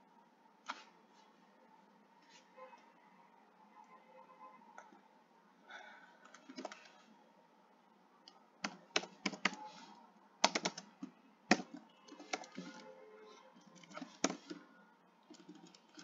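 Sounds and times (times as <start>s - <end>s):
typing on computer keyboard: 6.2s - 6.9s, 8.6s - 9.6s, 10.4s - 12.9s, 13.6s - 16.0s.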